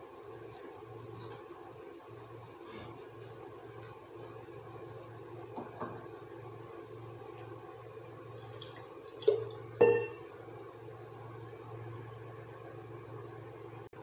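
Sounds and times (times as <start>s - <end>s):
whisk clinking on metal pot: 9.2s - 10.4s.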